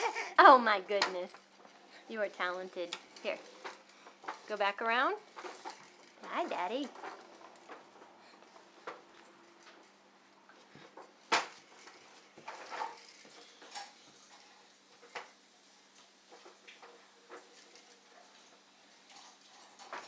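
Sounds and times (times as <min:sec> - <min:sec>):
plastic walker clicking and rattling: 0:00.9 - 0:09.9, 0:10.8 - 0:14.0.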